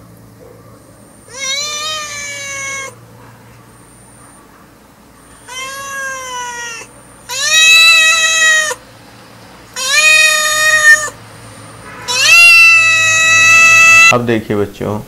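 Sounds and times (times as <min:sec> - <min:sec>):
cat meowing: 0:01.2 - 0:03.0, 0:05.4 - 0:08.8, 0:09.7 - 0:11.2, 0:12.0 - 0:14.2.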